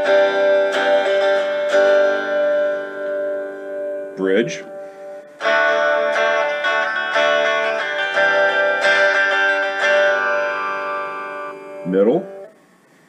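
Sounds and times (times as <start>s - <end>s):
clean electric guitar chords: 0.0s - 12.6s.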